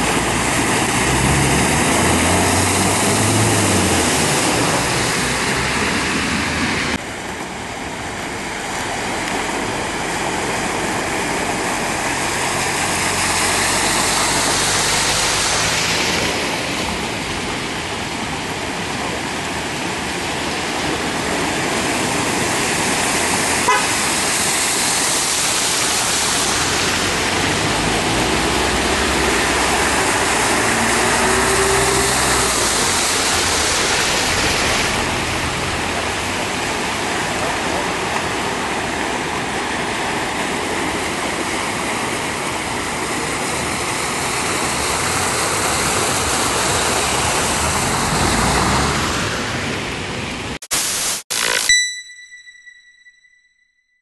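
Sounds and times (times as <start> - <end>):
car engines running: 0.0 - 50.6
water rushing and tyre spray: 0.0 - 51.3.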